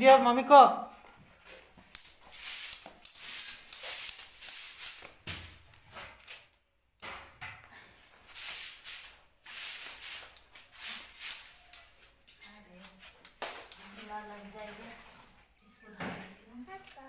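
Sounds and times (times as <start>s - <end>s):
hand broom sweeping floor: 1.2s - 6.5s, 7.8s - 15.5s.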